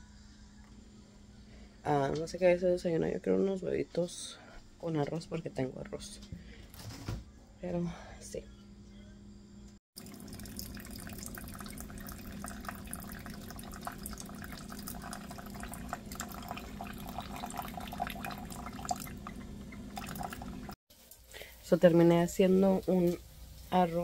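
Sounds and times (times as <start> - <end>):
faint machine hum: 0.0 - 24.0
coffee trickling into mug: 10.0 - 20.8.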